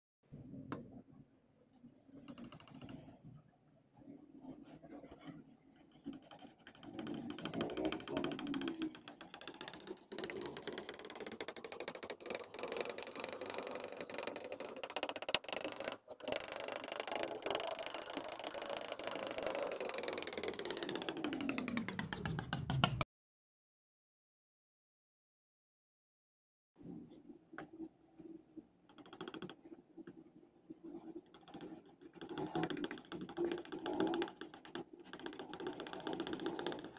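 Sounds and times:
palette knife scraping paint: 0:15.6 - 0:23.1.

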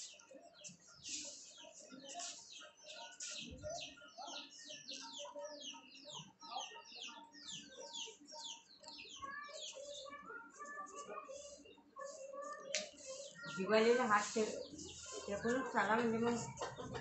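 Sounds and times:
birds chirping rapidly: 0:00.0 - 0:17.0.

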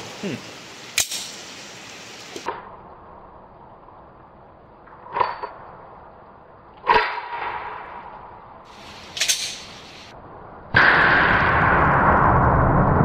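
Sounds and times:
loud steady noise: 0:08.7 - 0:13.0.

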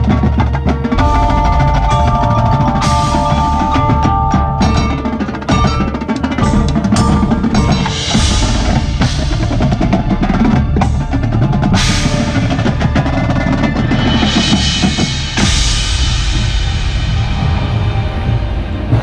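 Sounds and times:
snare drums: 0:00.0 - 0:16.4
bass drums: 0:00.0 - 0:19.0
tenor drums: 0:00.0 - 0:19.0
cymbal crashes: 0:01.0 - 0:10.0.

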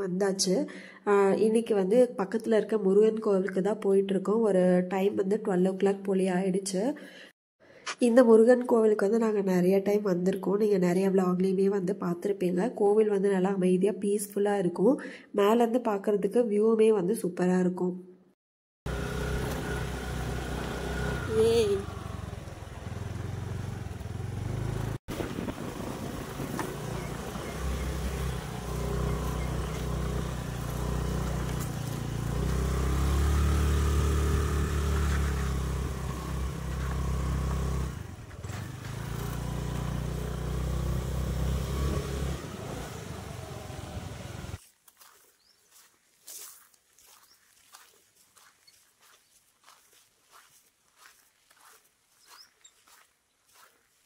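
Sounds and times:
scooter engine rumbling: 0:18.9 - 0:44.6.

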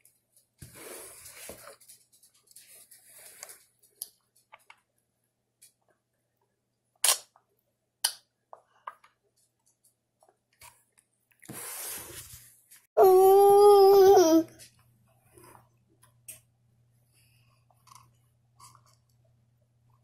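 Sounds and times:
mouth clicks and smacks: 0:07.0 - 0:07.4.

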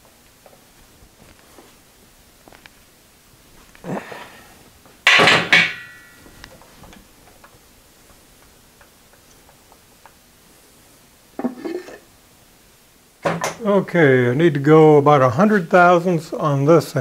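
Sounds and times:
vise handle clanking on metal: 0:05.1 - 0:06.1
metallic ring: 0:05.1 - 0:06.4.

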